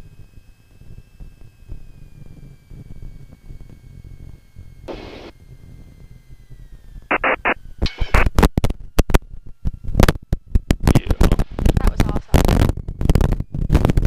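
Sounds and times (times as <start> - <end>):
aircraft engine hum with whine: 0.0 - 14.0
bursts of radio static: 4.9 - 5.3, 7.1 - 8.4, 10.8 - 14.0
irregular crackles and knocks: 7.1 - 14.0.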